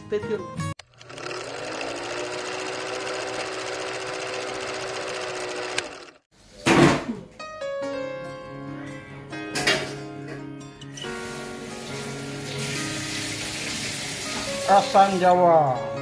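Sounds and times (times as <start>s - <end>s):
film projector whirring rattle: 0.8s - 6.3s
music with held notes: 7.3s - 16.0s.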